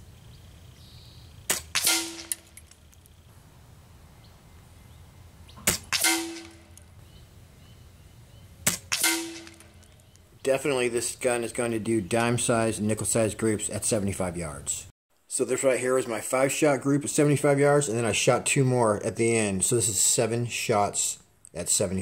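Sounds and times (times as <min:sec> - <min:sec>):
air rifle shots cracking: 0:01.5 - 0:02.6, 0:05.6 - 0:06.8, 0:08.6 - 0:09.9.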